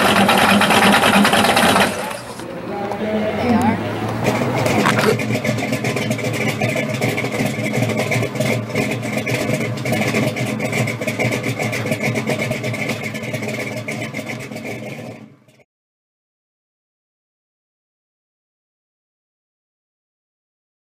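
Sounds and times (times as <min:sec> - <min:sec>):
car engine running: 0:00.0 - 0:15.6.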